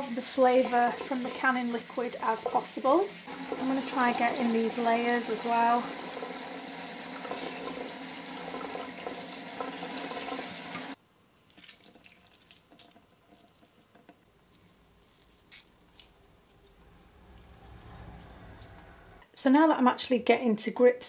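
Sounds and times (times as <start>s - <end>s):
tap water running into sieve: 0.0s - 16.8s
wet squelches and crackles: 11.3s - 19.2s.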